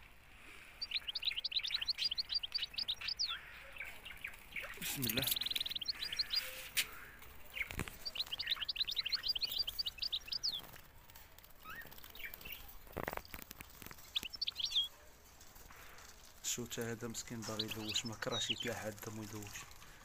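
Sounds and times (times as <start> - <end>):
canaries chirping: 0.0 - 20.0.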